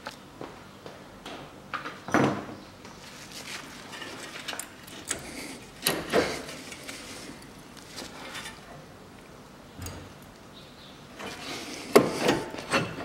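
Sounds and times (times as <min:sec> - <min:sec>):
metallic clunks and scrapes: 0:08.0 - 0:08.8, 0:11.2 - 0:13.0.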